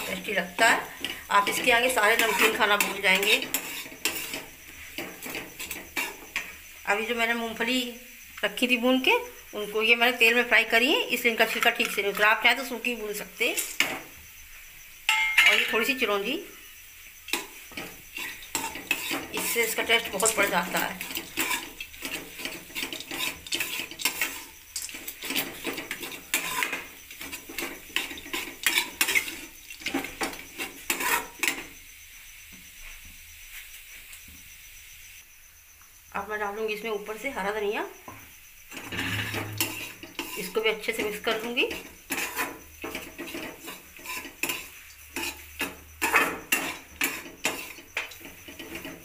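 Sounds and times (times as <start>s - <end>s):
metal spatula scraping a steel pan: 0.0s - 6.6s, 17.3s - 31.8s, 38.7s - 49.0s.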